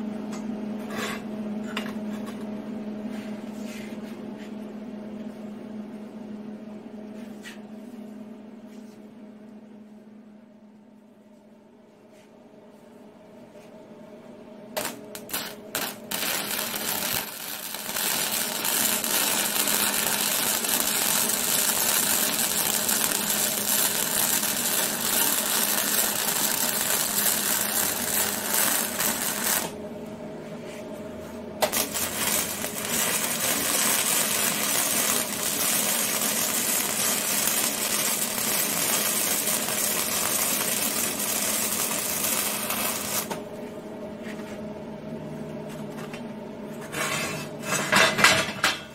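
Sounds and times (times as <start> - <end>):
welding arc sputtering: 14.8 - 29.8, 31.6 - 43.4.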